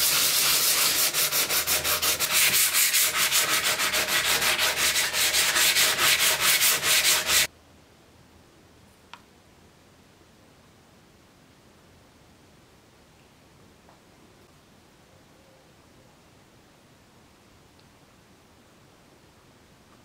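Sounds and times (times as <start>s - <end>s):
sandpaper scratching on metal: 0.0s - 7.5s
faint tick: 9.1s - 9.3s.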